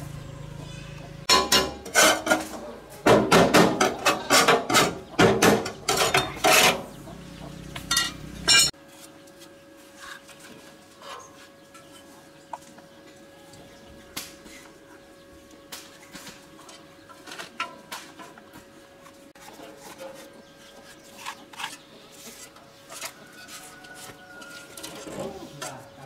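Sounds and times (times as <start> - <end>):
metal clanking and knocking: 1.3 - 6.9, 7.8 - 8.7.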